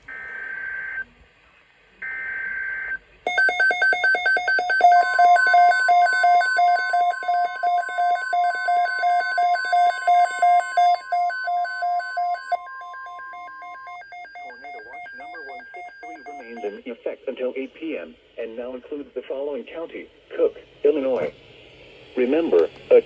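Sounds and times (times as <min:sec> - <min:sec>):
rapid pulsing alarm beeps: 0:02.0 - 0:16.8
steady warning alarm tone: 0:02.0 - 0:16.9.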